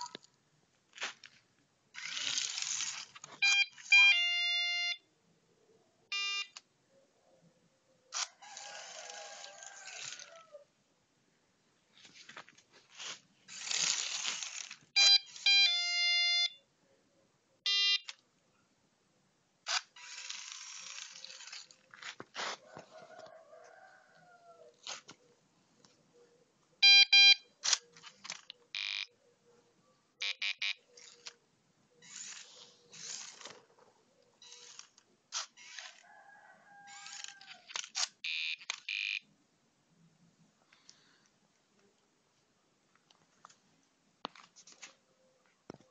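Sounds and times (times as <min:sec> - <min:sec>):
buzzer beeps and notes: 0:03.4 - 0:05.0, 0:06.1 - 0:06.5, 0:15.0 - 0:16.6, 0:17.7 - 0:18.1, 0:26.8 - 0:27.4, 0:30.2 - 0:30.8.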